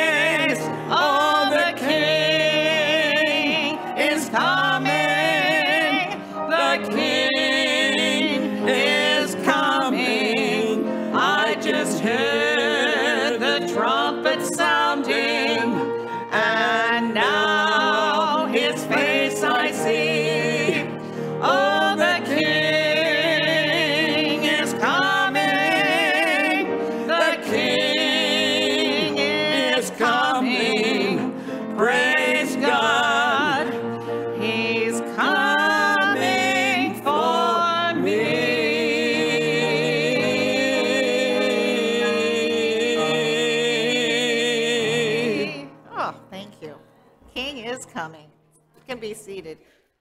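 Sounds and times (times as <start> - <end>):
person singing gospel hymn: 0.0 - 45.8.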